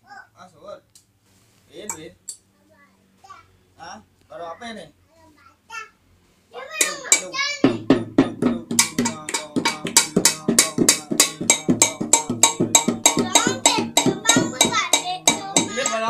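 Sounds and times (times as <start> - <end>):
hand drum strokes: 6.8 - 16.0.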